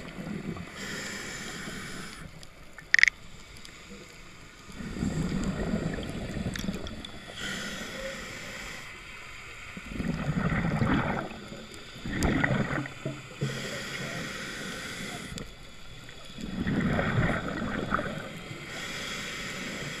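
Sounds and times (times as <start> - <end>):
exhaled bubbles underwater: 0.0 - 0.8, 4.7 - 7.5, 9.8 - 14.2, 15.0 - 18.8
regulator inhale hiss: 0.6 - 2.4, 3.3 - 5.8, 7.2 - 9.6, 12.9 - 16.6, 18.3 - 20.0.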